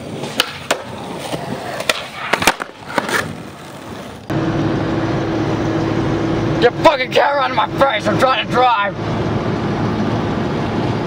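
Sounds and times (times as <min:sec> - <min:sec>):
skateboard clacks: 0:00.0 - 0:04.1
skateboard wheels rolling on concrete: 0:00.0 - 0:04.4.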